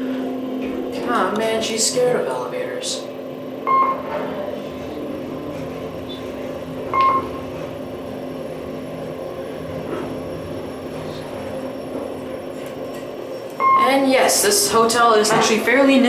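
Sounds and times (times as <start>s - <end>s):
elevator hum: 0.0s - 16.0s
short electronic beep: 3.7s - 4.0s, 6.9s - 7.3s.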